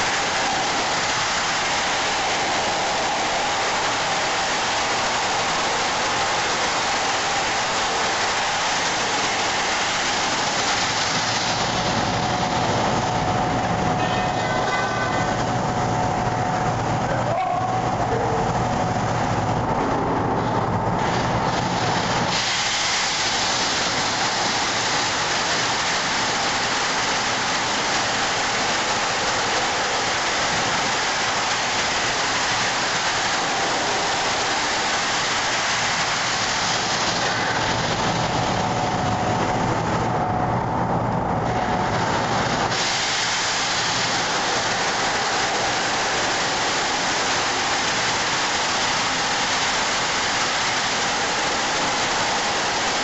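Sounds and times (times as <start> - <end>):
sandblaster blasting: 0.0 - 12.8, 21.0 - 38.6, 41.9 - 53.0.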